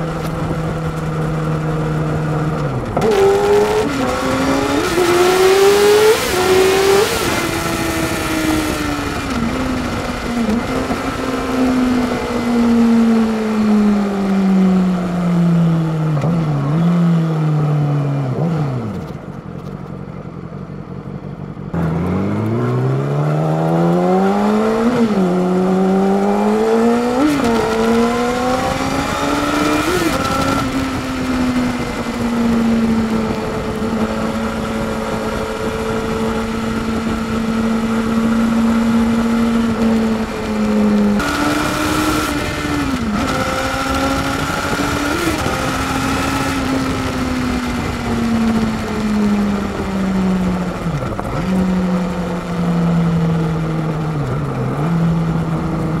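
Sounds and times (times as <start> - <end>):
motorcycle engine revving: 0.0 - 56.0
wind rush: 21.9 - 52.3.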